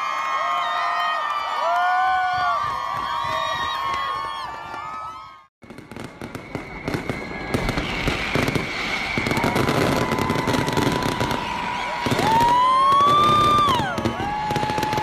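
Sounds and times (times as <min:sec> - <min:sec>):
fireworks crackling and popping: 0:05.6 - 0:15.0.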